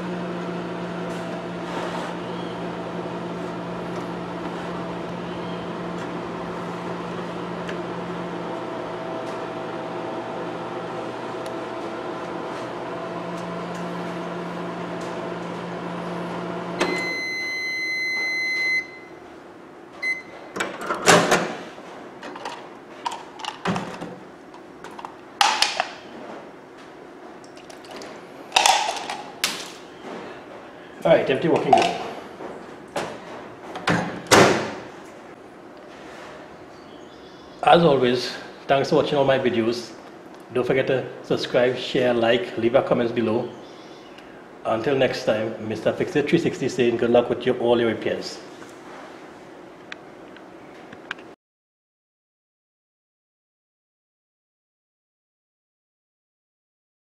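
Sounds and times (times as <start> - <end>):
microwave beeping: 0.0 - 19.3, 20.0 - 20.8
microwave oven humming: 0.0 - 51.2.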